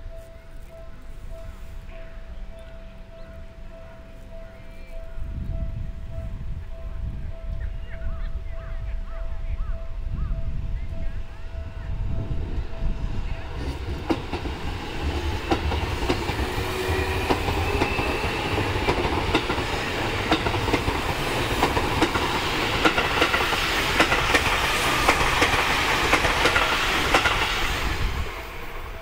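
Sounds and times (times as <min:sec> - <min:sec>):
train motor whine: 0:12.4 - 0:29.0
train wheels clicking over rail joints: 0:13.5 - 0:29.0.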